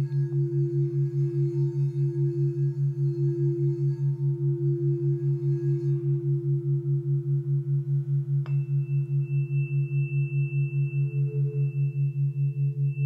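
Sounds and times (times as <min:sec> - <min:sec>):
low pulsing background tone: 0:00.0 - 0:13.0
singing bowl steady tone: 0:00.0 - 0:13.0
sharp tap on singing bowl: 0:08.4 - 0:08.7.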